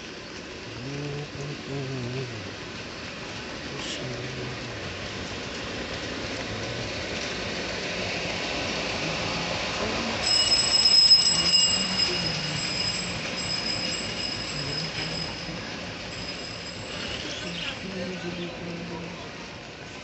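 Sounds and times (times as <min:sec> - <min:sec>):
street background noise: 0:00.0 - 0:20.0
high-pitched squeal: 0:10.0 - 0:17.9.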